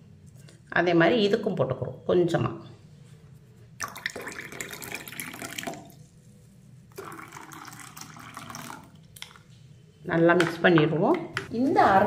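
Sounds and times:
liquid pouring into glasses: 3.8 - 6.0, 6.9 - 9.5.

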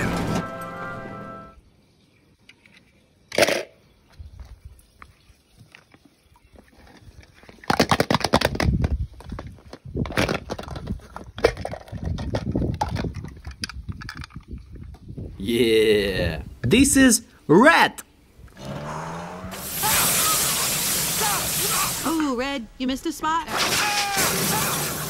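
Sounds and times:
plastic toy eggs clicking and rattling: 6.9 - 15.1.

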